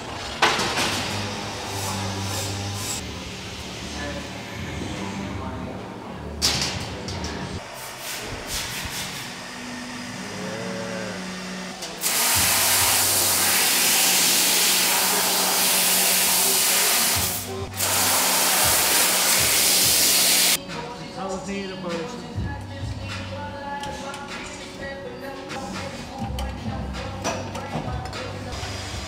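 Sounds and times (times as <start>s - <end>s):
laser cutter hissing: 10.2s - 20.6s.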